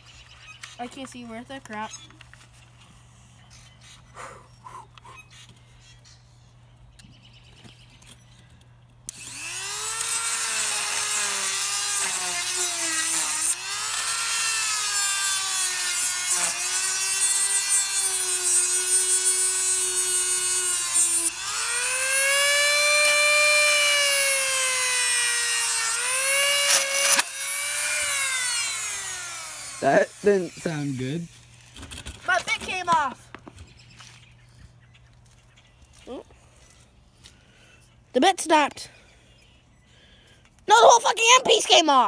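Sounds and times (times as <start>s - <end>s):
rotary tool grinding whine: 9.1s - 33.0s.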